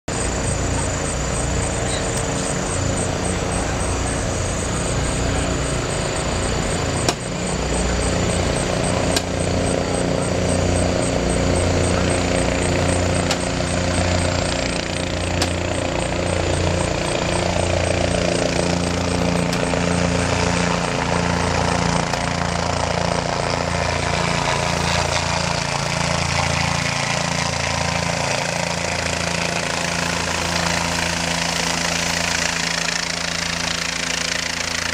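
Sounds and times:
helicopter rotor and turbine: 0.0 - 34.9
sharp clicks: 8.3 - 9.4, 12.9 - 16.4.

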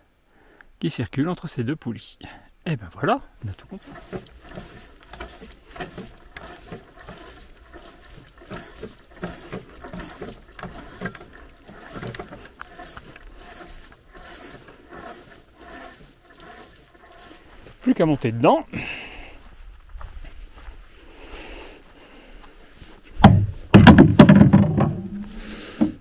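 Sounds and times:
pulley and cable creaking: 3.3 - 19.5, 22.8 - 26.0.

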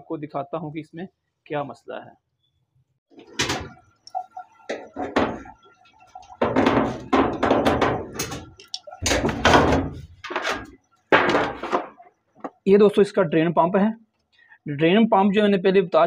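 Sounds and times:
metal panel knocking and scraping: 4.7 - 5.6, 6.2 - 12.6.

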